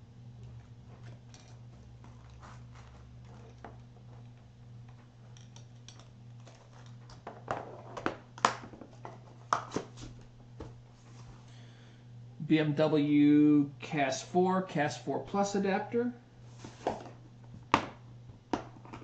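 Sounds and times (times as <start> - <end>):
steady low hum: 0.0 - 19.0
cardboard rustling: 0.7 - 4.2.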